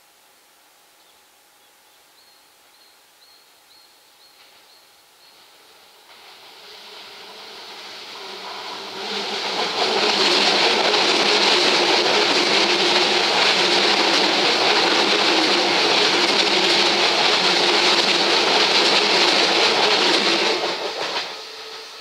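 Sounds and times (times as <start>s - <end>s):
electric train passing: 4.2s - 22.0s.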